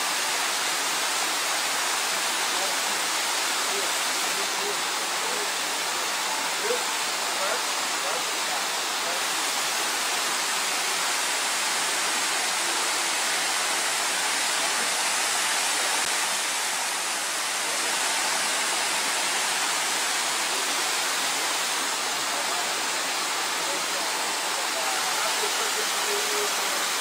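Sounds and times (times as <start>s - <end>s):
waterfall rushing: 0.0s - 27.0s.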